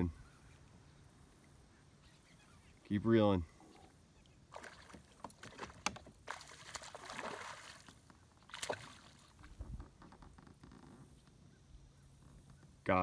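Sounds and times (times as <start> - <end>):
water splashing against kayak: 4.5 - 9.8.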